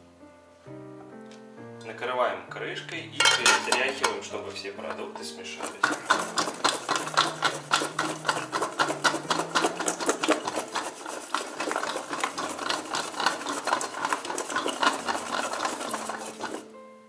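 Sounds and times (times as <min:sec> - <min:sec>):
potato slices rattling in shaken pot: 0:03.2 - 0:16.7.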